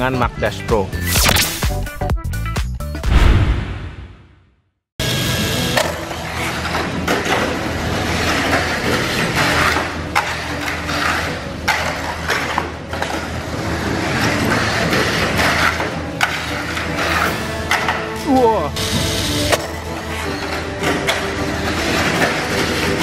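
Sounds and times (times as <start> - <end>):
rollers rubbing track walls: 18.8 - 23.0.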